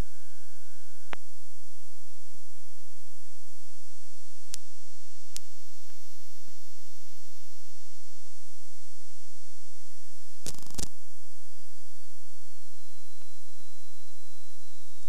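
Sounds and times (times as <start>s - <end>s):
electrical hum and hiss: 0.0s - 15.0s
sharp clicks: 10.4s - 10.9s.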